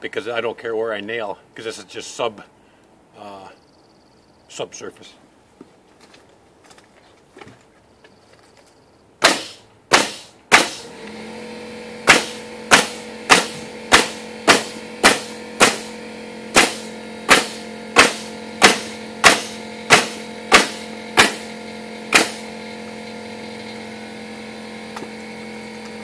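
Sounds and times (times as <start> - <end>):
nail gun shots: 9.2 - 11.0, 12.0 - 22.5
air compressor motor hum: 9.2 - 26.0.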